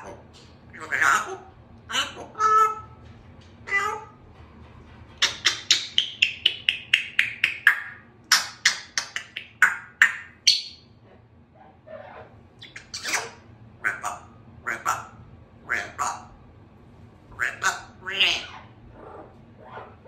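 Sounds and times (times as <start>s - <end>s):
parrot lower calls: 0.8s - 3.0s, 5.2s - 10.9s, 11.8s - 16.4s, 17.3s - 20.0s
parrot clicking chirps: 5.2s - 10.8s.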